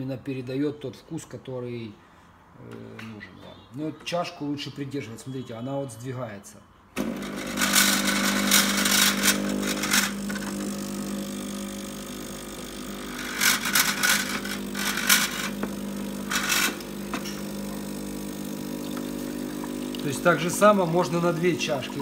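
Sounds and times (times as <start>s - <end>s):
espresso machine pump running: 7.0s - 22.0s.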